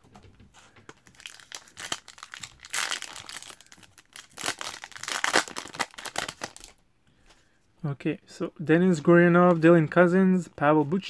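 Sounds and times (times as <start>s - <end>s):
foil wrapper crinkling and tearing: 1.0s - 6.8s.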